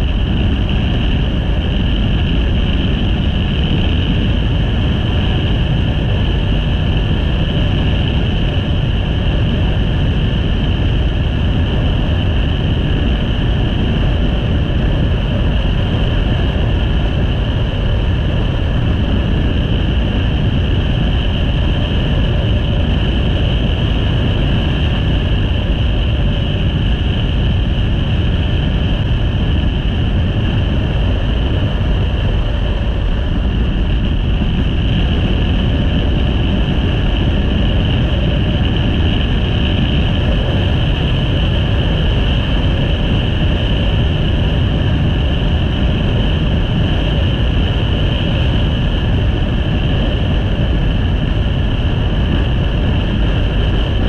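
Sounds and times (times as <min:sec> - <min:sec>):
motorcycle engine and road noise: 0:00.0 - 0:54.0
wind rush while riding: 0:00.0 - 0:54.0.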